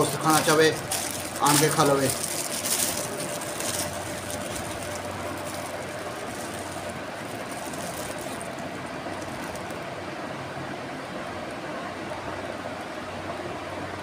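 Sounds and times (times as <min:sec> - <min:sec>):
paper wrapper crinkling: 0:00.0 - 0:09.8.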